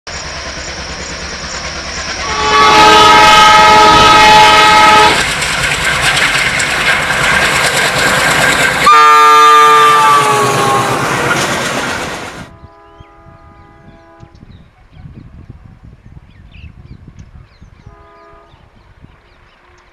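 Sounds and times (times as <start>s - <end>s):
train rumbling over rails: 0.1s - 19.9s
locomotive horn blasts: 2.2s - 5.2s, 8.8s - 11.4s, 12.5s - 14.5s, 17.8s - 18.7s.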